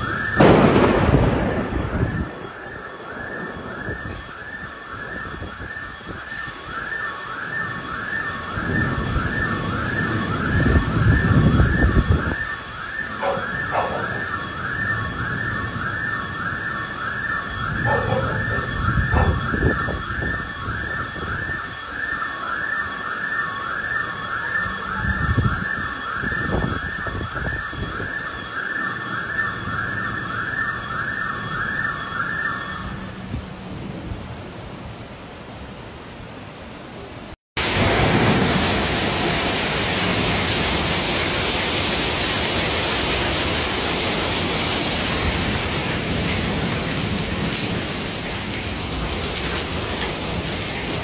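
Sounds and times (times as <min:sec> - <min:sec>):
warbling alarm siren: 0:00.0 - 0:33.8, 0:37.6 - 0:51.0
floodwater rushing: 0:34.3 - 0:51.0.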